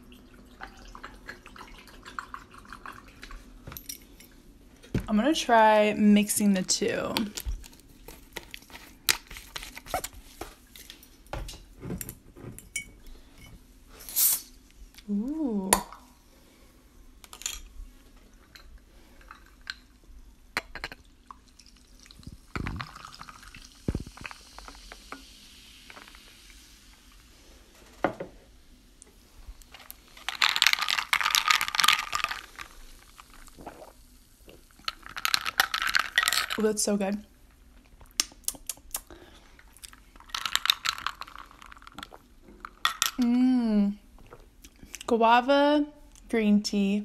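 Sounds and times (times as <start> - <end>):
juice pouring into glass: 0.0 - 3.4, 21.0 - 26.7, 30.1 - 36.6, 40.2 - 43.1
drink stirred and sipped: 0.5 - 4.3, 20.6 - 25.2, 29.6 - 36.7, 39.7 - 43.2
ice and straw clinking on glass: 34.9 - 36.7.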